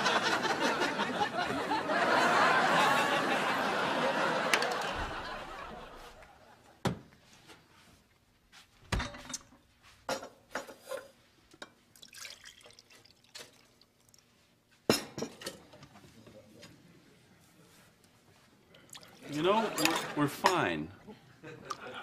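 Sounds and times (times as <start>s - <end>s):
dishes and cutlery clinking: 10.1s - 11.8s, 14.9s - 16.7s, 19.5s - 20.7s
liquid pouring: 11.9s - 14.3s, 18.8s - 20.0s.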